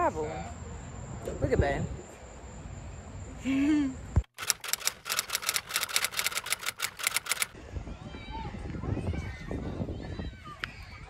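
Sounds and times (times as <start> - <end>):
outdoor background noise: 0.0 - 11.0
typewriter key clacks: 4.4 - 7.6.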